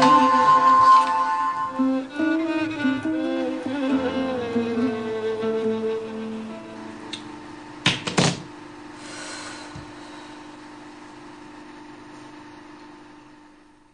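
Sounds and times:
bowed string music: 0:00.0 - 0:07.2
steady low hum: 0:00.0 - 0:13.9.

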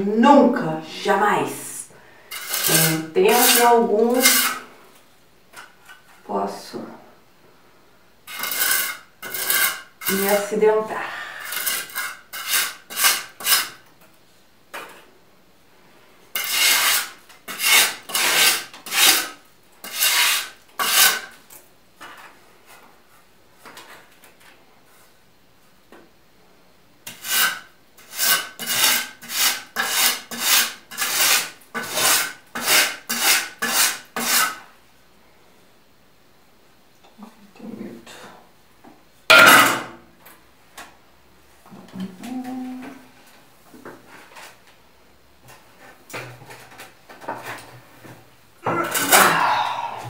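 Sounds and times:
hand scraper rasping on plaster: 0:02.3 - 0:04.6, 0:08.3 - 0:10.5, 0:11.4 - 0:13.8, 0:16.4 - 0:21.3, 0:27.1 - 0:34.6.

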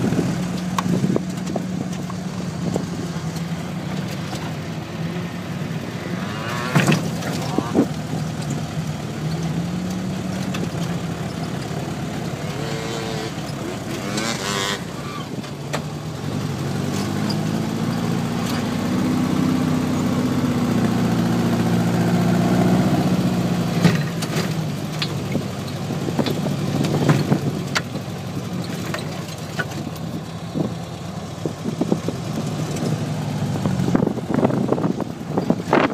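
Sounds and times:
dune buggy engine running: 0:00.0 - 0:35.9
sharp knocks and rattles: 0:23.7 - 0:30.2.

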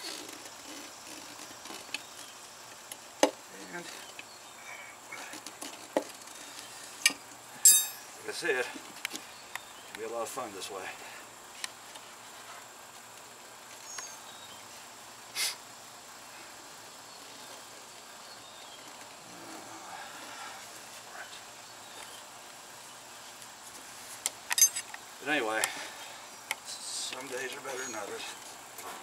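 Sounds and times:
hand tools clicking on metal: 0:24.5 - 0:25.0.

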